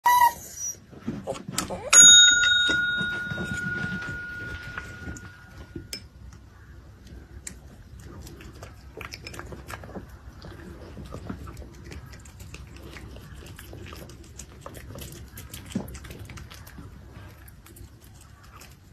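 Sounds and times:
service bell ringing: 1.9 - 5.9.

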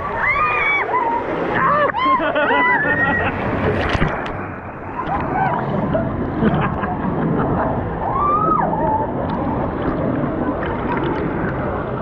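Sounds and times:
river water rushing and sloshing: 0.0 - 12.0
faint voices: 8.0 - 12.0.

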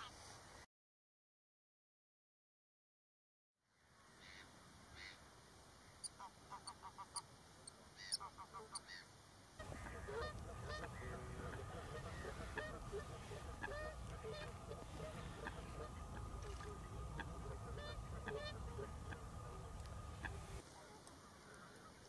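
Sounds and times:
birds calling: 8.0 - 20.6
goose-like honking: 9.6 - 20.6
low background rumble: 9.6 - 20.6.

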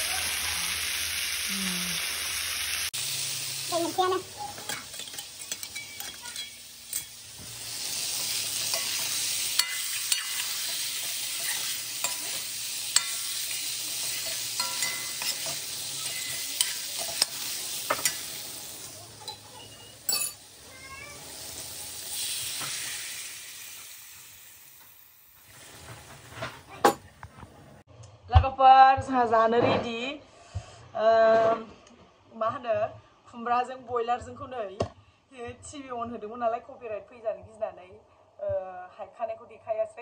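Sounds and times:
chicken sizzling in a wok: 0.0 - 26.8
metal spoon scraping a pan: 4.4 - 18.5.

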